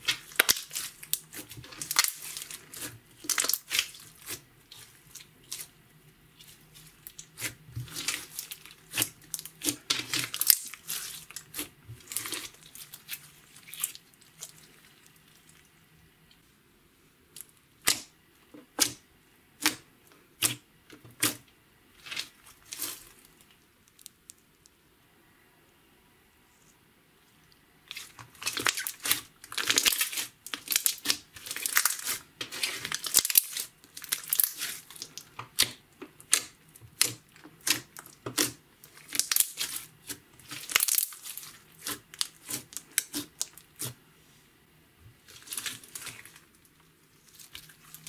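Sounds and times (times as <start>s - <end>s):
slime squelching and popping: 0.0s - 5.7s, 6.4s - 15.6s, 27.9s - 44.0s.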